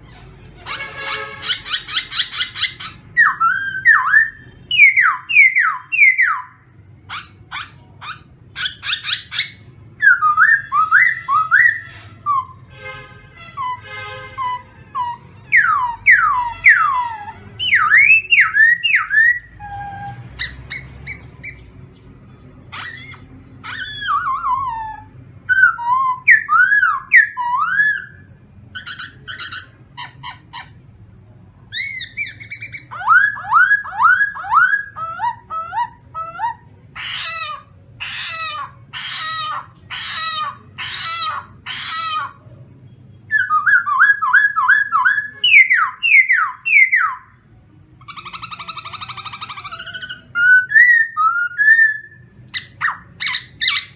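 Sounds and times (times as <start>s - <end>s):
bird singing whistled phrases: 1.5s - 12.6s, 14.4s - 21.7s, 22.8s - 29.7s, 31.7s - 36.6s, 43.2s - 47.3s, 48.1s - 53.9s.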